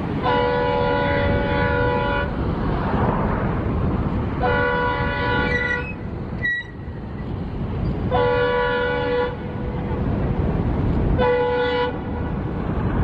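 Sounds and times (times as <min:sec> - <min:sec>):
locomotive air horn blasts: 0:00.2 - 0:02.4, 0:04.4 - 0:06.9, 0:08.1 - 0:09.8, 0:11.2 - 0:12.3.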